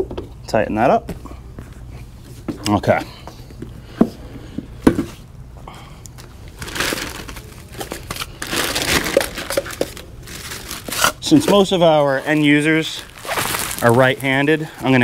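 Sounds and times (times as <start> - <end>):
plastic packaging crinkling: 6.4 - 15.0.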